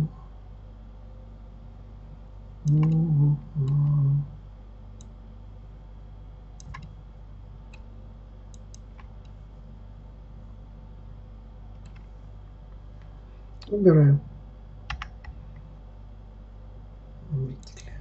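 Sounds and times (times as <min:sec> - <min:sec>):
steady low hum: 0:00.0 - 0:18.0
computer mouse clicks: 0:02.7 - 0:03.0, 0:05.0 - 0:05.2, 0:06.6 - 0:07.0, 0:08.5 - 0:09.4, 0:11.8 - 0:12.1, 0:14.9 - 0:15.6.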